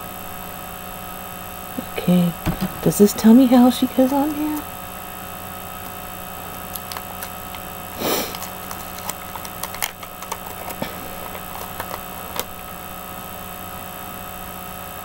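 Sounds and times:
steady electrical hum: 0:00.0 - 0:15.0
plastic toy pieces clicking: 0:06.7 - 0:12.5.

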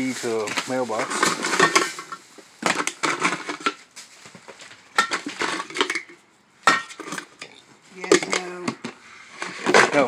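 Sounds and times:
plastic crinkling: 0:00.0 - 0:05.8.

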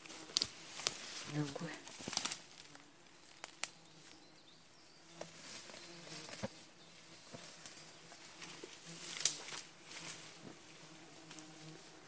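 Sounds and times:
stems snapping: 0:00.0 - 0:03.8, 0:09.0 - 0:09.7
buzz of flying insects: 0:00.0 - 0:12.0
grass and leaves rustling: 0:00.0 - 0:12.0.

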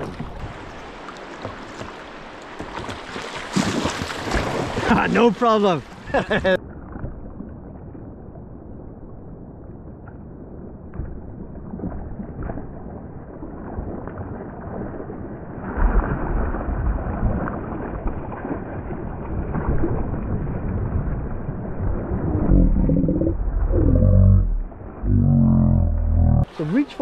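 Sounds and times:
small water splashes: 0:00.0 - 0:07.7, 0:10.9 - 0:22.3
river water sloshing and gurgling: 0:00.0 - 0:25.1.

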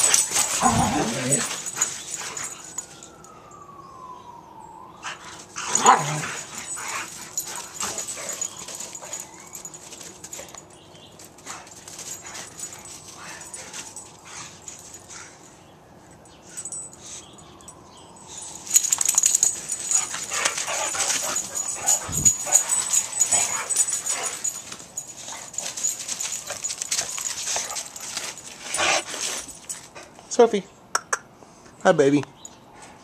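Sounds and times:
dogs scuffling: 0:00.0 - 0:03.1, 0:05.1 - 0:15.4, 0:18.3 - 0:30.2
dogs whining: 0:00.0 - 0:03.8, 0:05.0 - 0:15.5, 0:16.4 - 0:30.0.

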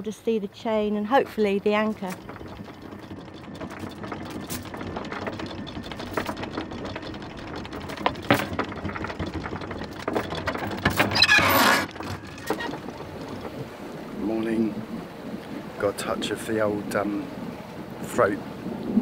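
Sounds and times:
anchor windlass running: 0:00.2 - 0:19.0.

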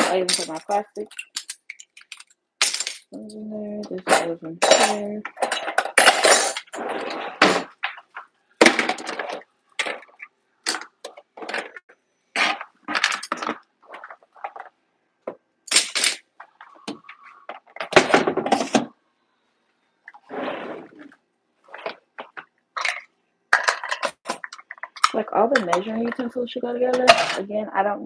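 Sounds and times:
metal cutlery clinking in drawer: 0:00.0 - 0:03.3.

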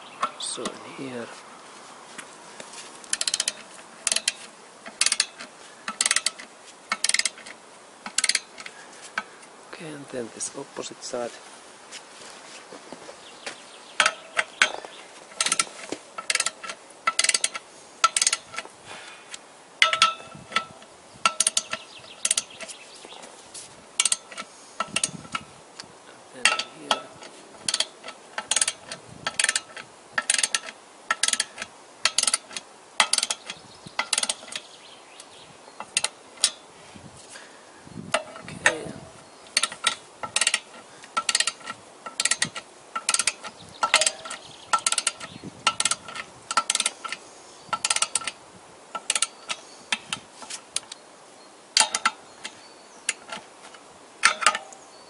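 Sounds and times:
socket ratchet clicking: 0:03.1 - 0:08.6, 0:15.4 - 0:18.6, 0:19.8 - 0:22.6, 0:24.0 - 0:25.4, 0:27.7 - 0:34.7, 0:39.5 - 0:47.2, 0:47.8 - 0:48.4, 0:49.0 - 0:50.2.

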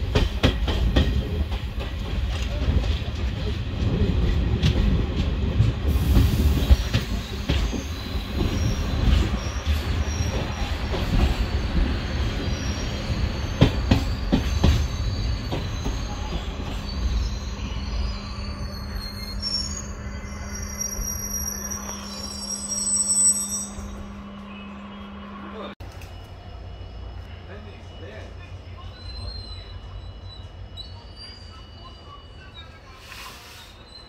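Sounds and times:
train wheels rumbling on rail: 0:00.0 - 0:22.6
high wheel squeal: 0:06.0 - 0:34.0.

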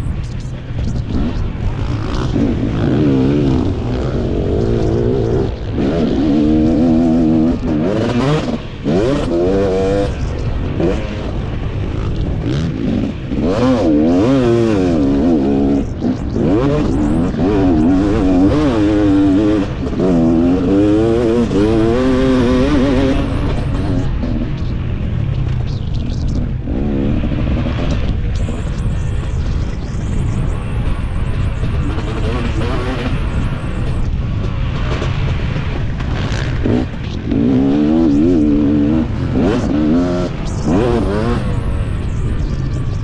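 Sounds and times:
motocross engine revving: 0:01.1 - 0:24.6, 0:36.0 - 0:43.0.

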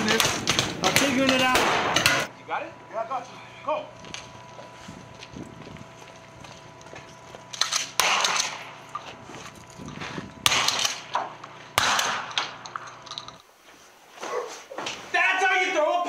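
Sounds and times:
blank gunshots: 0:00.0 - 0:02.3, 0:07.6 - 0:08.8, 0:10.4 - 0:12.6.

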